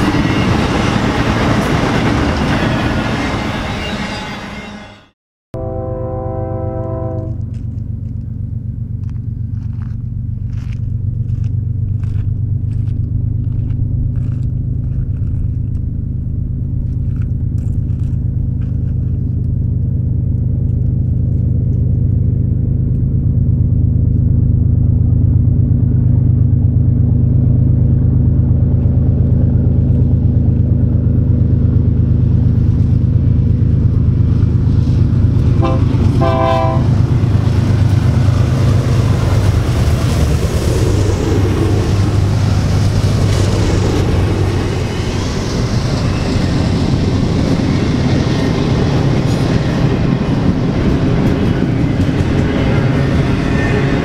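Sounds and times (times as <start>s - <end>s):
diesel locomotive engines droning: 0.0s - 54.0s
train horn: 2.6s - 7.5s, 35.6s - 37.0s.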